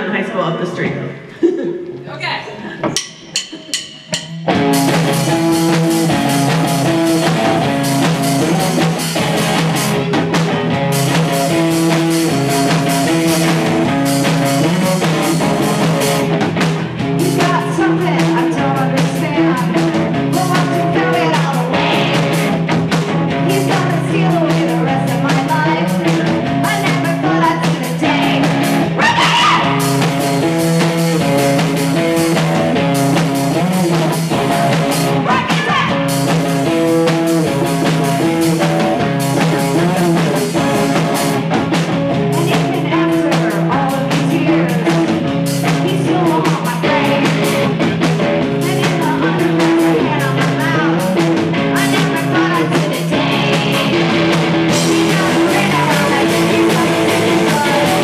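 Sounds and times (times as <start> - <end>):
drum kit: 0.0 - 58.0
distorted electric guitars: 3.2 - 58.0
person singing: 17.2 - 32.6, 42.1 - 54.1, 54.7 - 58.0.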